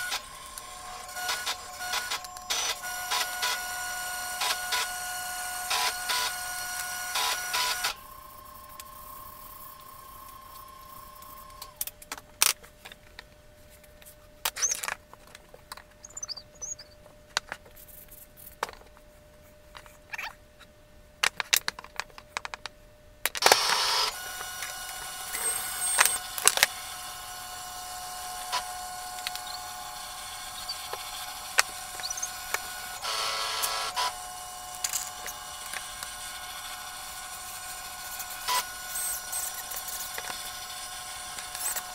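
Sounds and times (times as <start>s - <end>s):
machine hum with held tones: 0.0s - 21.3s, 22.2s - 41.9s.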